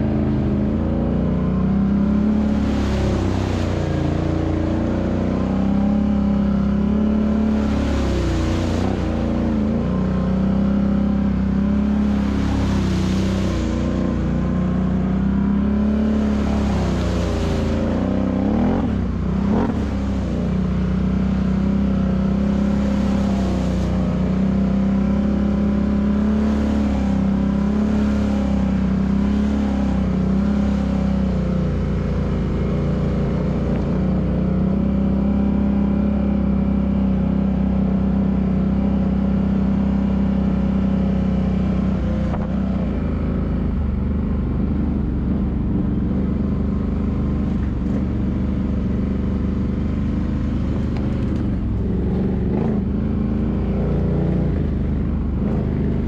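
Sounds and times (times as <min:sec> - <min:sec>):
atv engine running: 0:41.7 - 0:56.0.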